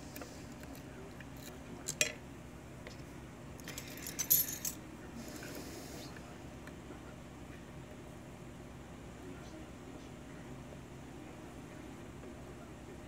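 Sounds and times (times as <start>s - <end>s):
metallic clinks and scraping: 3.7s - 4.8s.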